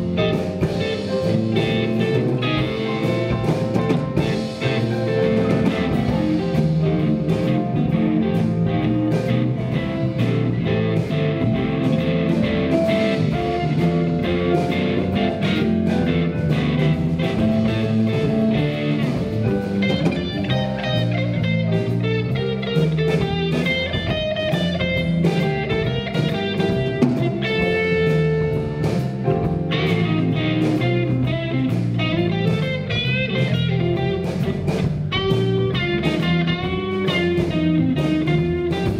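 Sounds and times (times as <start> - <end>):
electric guitar lead lines: 0.0 - 38.9
live blues band playing: 0.0 - 38.9.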